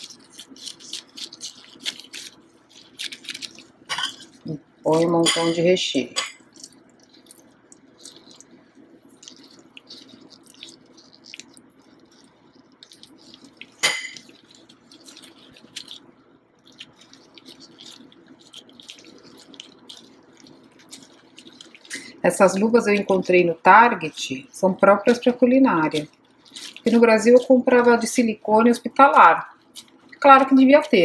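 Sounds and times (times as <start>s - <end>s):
faint steady hum: 0.0s - 31.0s
sticky dough handling in gloves: 0.0s - 31.0s
utensils scraping ceramic bowl: 13.6s - 14.4s.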